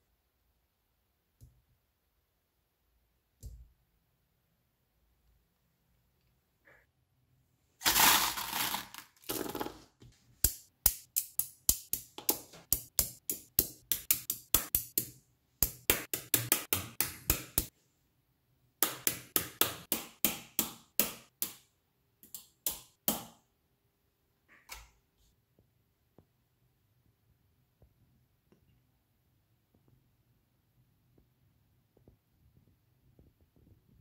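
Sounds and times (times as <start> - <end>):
magnets and steel balls clicking: 10.4 - 17.7.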